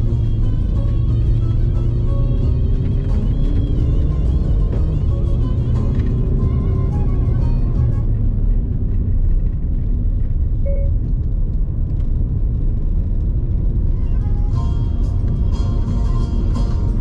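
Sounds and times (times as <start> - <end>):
folk music: 0.0 - 8.2, 13.9 - 17.0
car engine and road noise: 0.0 - 17.0.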